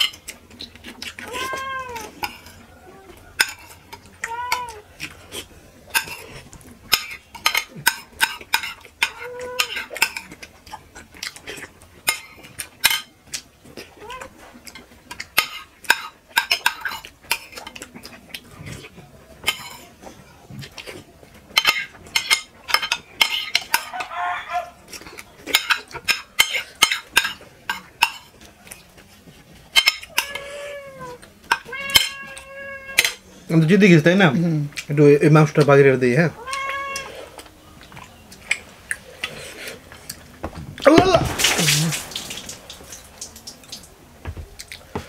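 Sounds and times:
metal spoons scraping ceramic plates: 1.1s - 2.7s, 3.3s - 4.6s.

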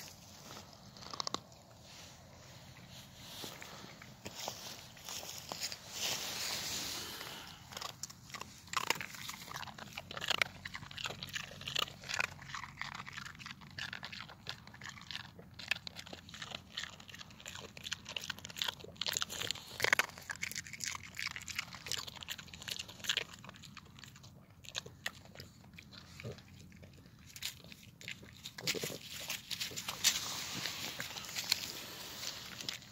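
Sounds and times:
dog chewing ice: 7.1s - 32.9s.

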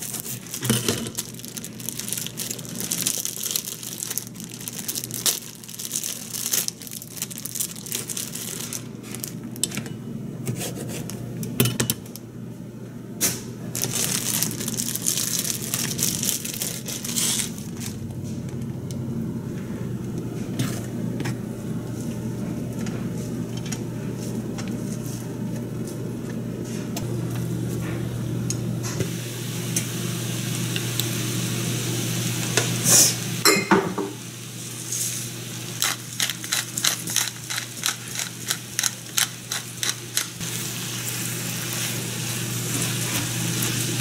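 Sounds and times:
plastic packaging crinkling: 0.0s - 9.6s, 13.7s - 18.1s, 35.8s - 40.4s
steady low hum: 0.0s - 44.0s.

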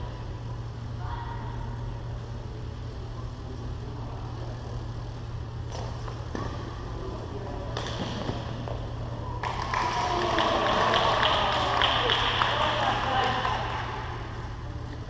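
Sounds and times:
steady low hum: 0.0s - 15.0s
rackets hitting shuttlecock: 7.6s - 8.8s.

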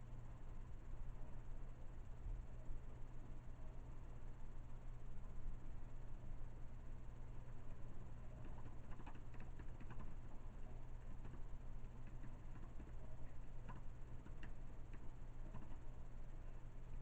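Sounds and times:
steady low hum: 0.0s - 17.0s
keyboard typing clicks: 8.4s - 15.9s.

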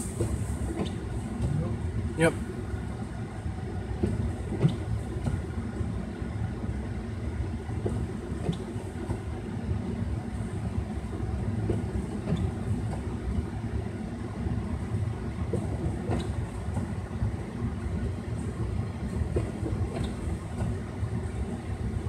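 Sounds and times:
faint train clacks: 0.0s - 3.1s, 3.7s - 5.6s, 7.6s - 13.8s, 14.8s - 22.0s
train cars rumbling past: 0.0s - 6.4s.

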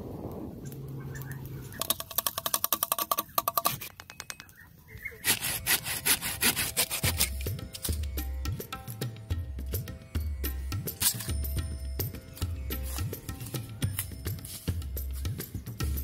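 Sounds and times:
blade cutting wooden branch: 1.7s - 4.6s, 5.2s - 8.2s
music: 5.2s - 16.0s.

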